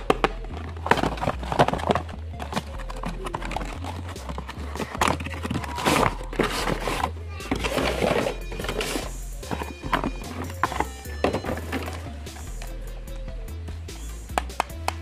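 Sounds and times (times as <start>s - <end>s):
cardboard box rustling and scraping: 0.6s - 12.1s.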